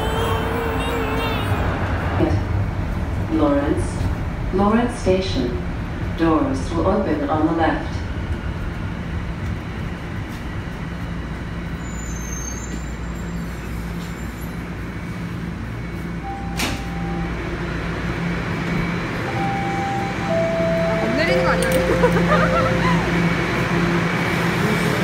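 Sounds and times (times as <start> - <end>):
subway train rumble: 0.0 - 25.0
electronic chime tone: 19.3 - 23.1.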